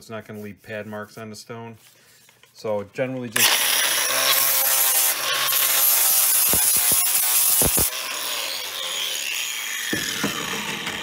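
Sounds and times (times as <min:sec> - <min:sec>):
angle grinder sanding stone: 0:03.4 - 0:11.0
knocks: 0:09.9 - 0:11.0.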